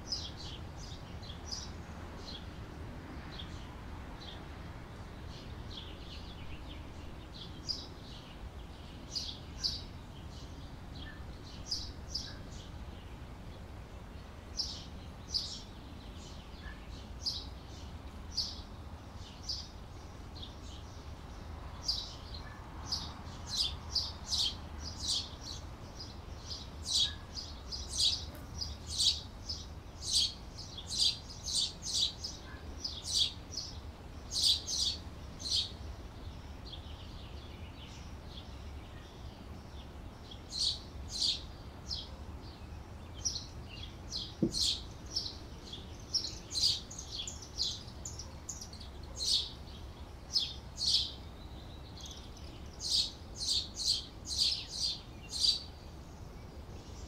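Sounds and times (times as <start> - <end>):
canaries chirping: 22.9 - 35.8, 40.3 - 42.1, 43.2 - 51.2, 51.9 - 55.7.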